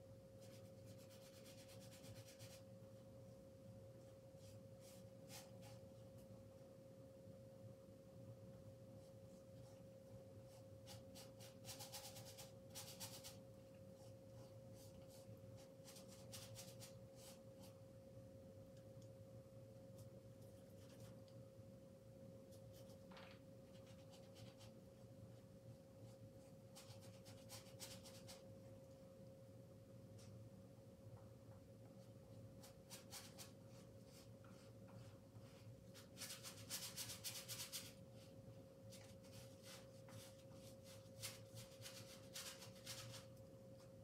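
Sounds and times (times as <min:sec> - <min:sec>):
faint humming tone: 0:00.0 - 0:32.8
paintbrush scratching on canvas: 0:00.4 - 0:02.7, 0:09.0 - 0:17.8, 0:26.0 - 0:28.4.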